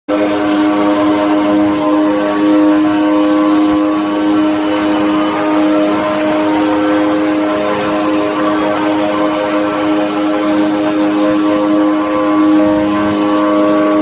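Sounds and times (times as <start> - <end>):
vehicles driving at speed: 0.1 - 14.0.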